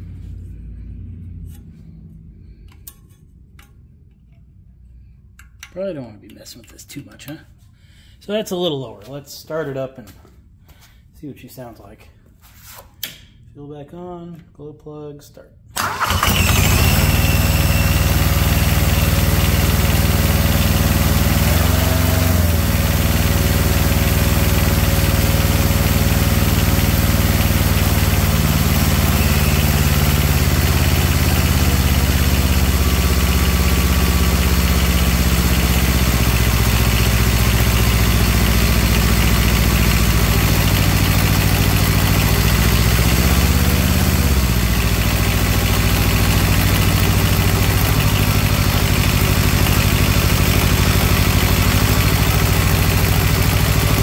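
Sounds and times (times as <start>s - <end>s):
small diesel engine running: 15.8s - 54.0s.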